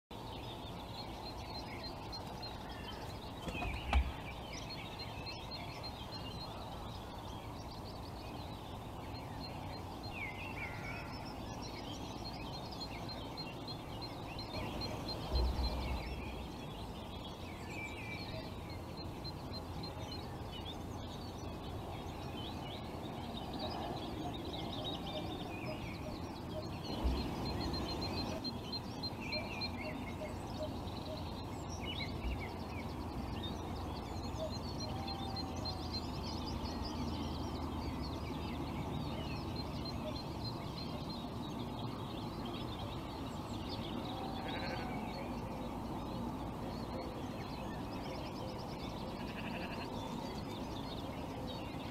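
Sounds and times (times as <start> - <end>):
small birds chirping: 0.1 - 51.9
steady rushing noise: 11.1 - 49.1.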